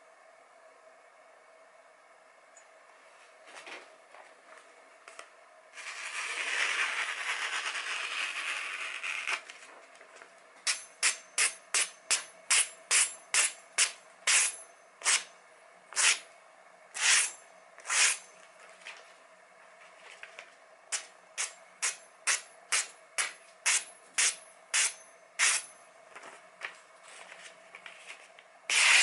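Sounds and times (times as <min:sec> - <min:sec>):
paper rustling: 0:26.1 - 0:28.4.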